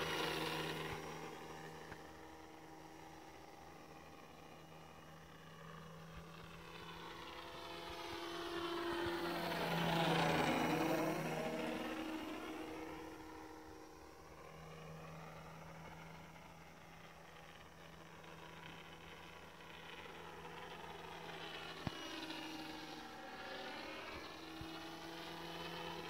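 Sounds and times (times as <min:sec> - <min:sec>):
model plane motor buzzing: 0:00.0 - 0:26.0.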